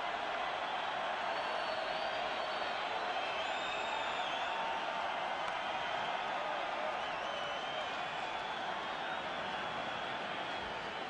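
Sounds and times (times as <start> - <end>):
large stadium crowd: 0.0 - 11.0
faint high whistle: 1.3 - 4.6, 7.0 - 9.2.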